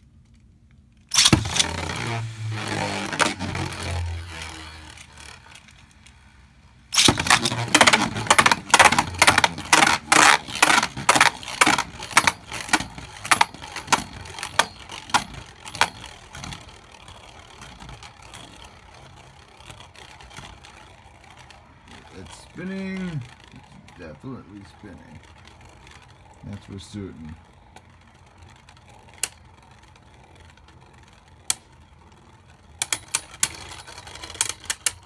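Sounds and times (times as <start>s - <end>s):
spinning tops whirring: 1.0s - 35.0s
spinning tops clacking together: 1.1s - 5.6s, 6.9s - 16.8s.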